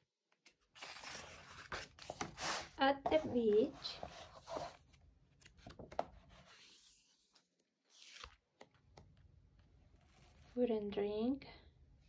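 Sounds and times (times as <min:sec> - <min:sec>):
book pages rustling: 0:00.3 - 0:09.2, 0:09.9 - 0:10.6
page turning swish: 0:06.5 - 0:08.4.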